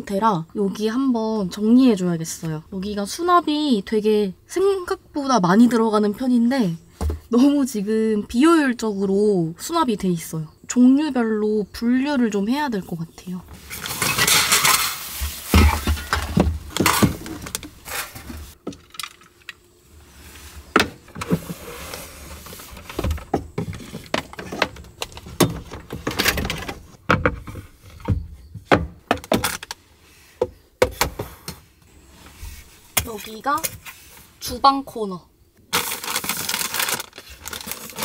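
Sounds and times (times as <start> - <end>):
rustling: 13.5 - 18.6, 35.7 - 38.0.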